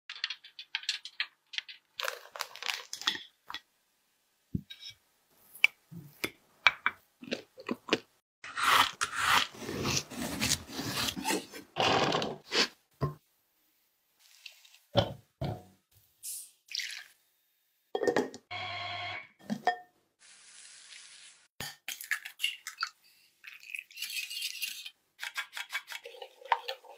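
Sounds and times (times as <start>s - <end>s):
crisp pastry crunching: 1.9s - 3.1s.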